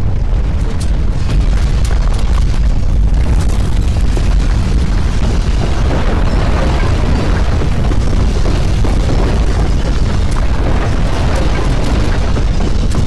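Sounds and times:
deep earthquake rumble: 0.0 - 13.0.

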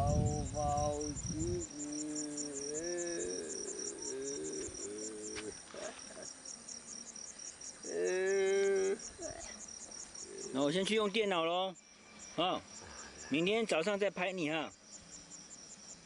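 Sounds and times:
crickets chirping: 0.0 - 16.0
person making wavering sounds: 0.8 - 6.3, 7.9 - 9.5.

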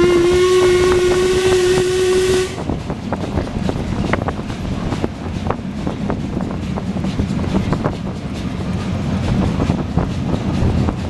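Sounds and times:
steam whistle blast: 0.0 - 2.7
locomotive rumble: 0.0 - 11.0
track clicks and rattles: 2.6 - 11.0.

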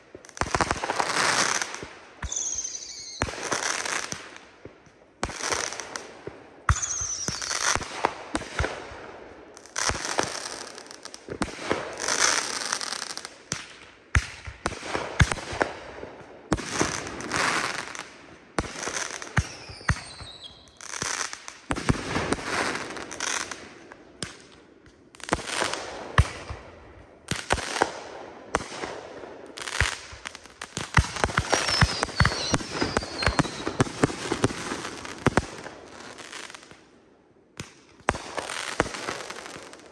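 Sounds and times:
fireworks aerial bursts: 0.0 - 9.0, 27.2 - 36.8
falling fireworks whistles: 0.4 - 4.2, 6.7 - 8.0, 18.7 - 23.5, 30.9 - 36.6.

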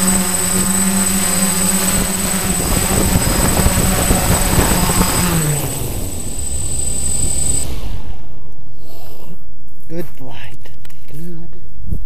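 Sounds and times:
drone motors humming: 0.0 - 9.4.

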